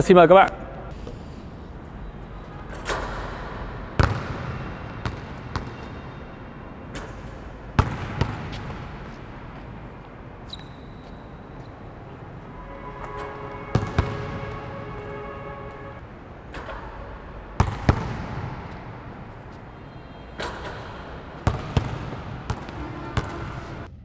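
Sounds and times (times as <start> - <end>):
basketballs bouncing on court floor: 4.0 - 6.2, 6.9 - 9.7, 13.7 - 14.6, 17.6 - 19.4, 20.4 - 23.9.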